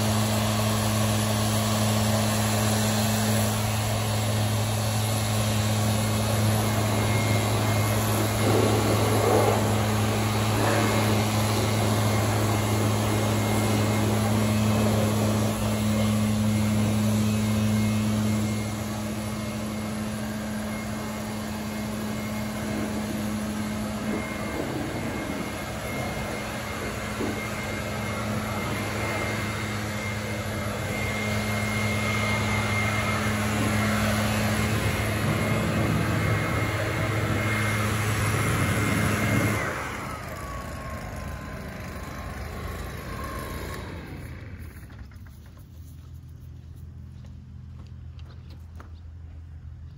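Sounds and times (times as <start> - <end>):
engine humming steadily: 0.0 - 49.9.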